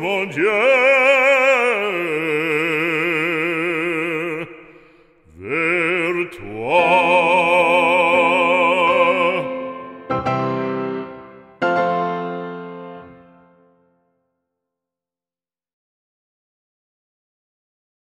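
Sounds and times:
classical solo singing voice: 0:00.0 - 0:10.3.

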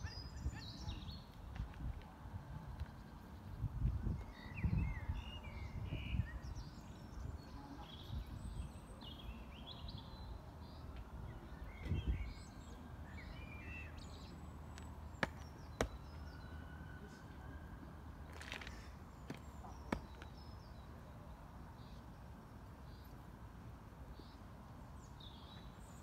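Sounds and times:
wind rumbling on microphone: 0:00.0 - 0:09.0, 0:11.2 - 0:12.4
birds chirping: 0:02.7 - 0:17.3, 0:18.3 - 0:22.2.

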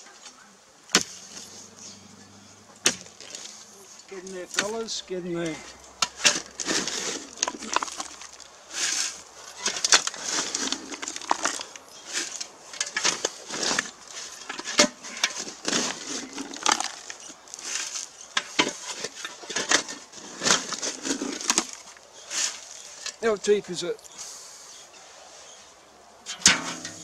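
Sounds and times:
bucket scooping gravelly soil: 0:03.1 - 0:23.4.

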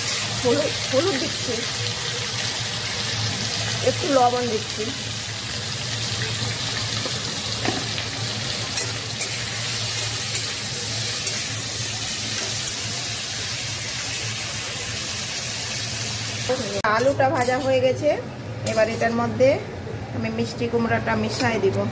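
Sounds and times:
potato slices sizzling in oil: 0:00.0 - 0:19.4
metal spatula clicks and scrapes: 0:08.8 - 0:09.4, 0:11.2 - 0:11.5.

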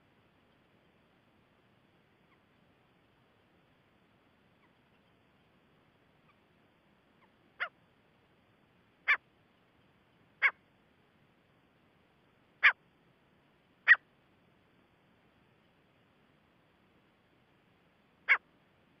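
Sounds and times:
francolin calling: 0:04.5 - 0:05.5, 0:07.1 - 0:07.8, 0:09.0 - 0:09.2, 0:10.4 - 0:10.6, 0:12.6 - 0:12.8, 0:13.8 - 0:14.1.

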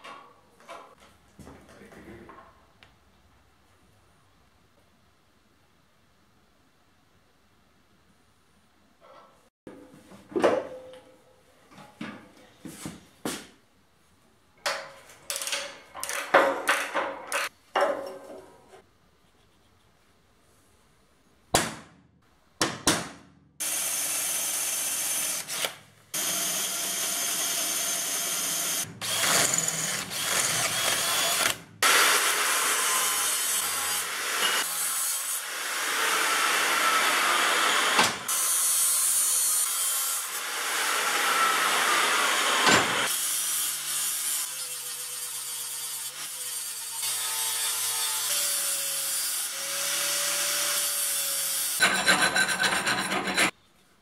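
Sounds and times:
electric drill boring through steel: 0:23.6 - 0:34.7
angle grinder on steel: 0:23.6 - 0:53.5.

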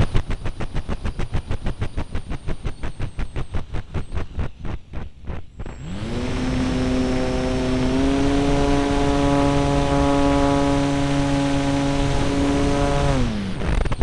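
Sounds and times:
model airplane motor humming: 0:05.6 - 0:14.0.

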